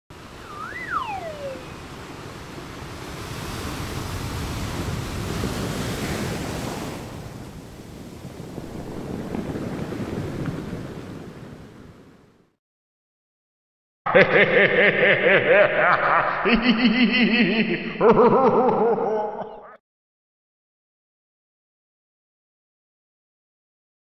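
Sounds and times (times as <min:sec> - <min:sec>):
ocean waves washing in: 0:00.1 - 0:12.6
rising and falling whistle: 0:00.4 - 0:01.9.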